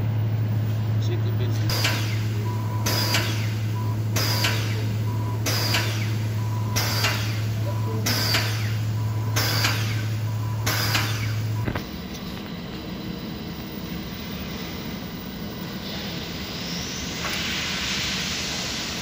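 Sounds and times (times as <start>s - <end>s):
pressure washer motor hum: 0.0s - 12.9s
pressure washer hissing bursts: 1.7s - 11.5s, 16.0s - 19.0s.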